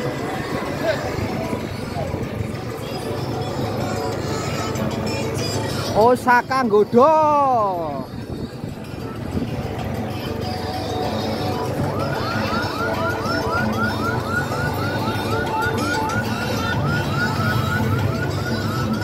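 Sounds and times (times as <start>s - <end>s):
road and riding noise: 0.0s - 19.0s
electronic siren yelping: 11.5s - 19.0s.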